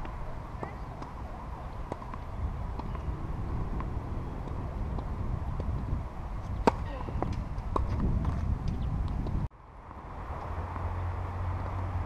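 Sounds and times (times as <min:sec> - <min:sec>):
tennis racket hitting ball: 0:01.8 - 0:03.1, 0:03.7 - 0:08.4.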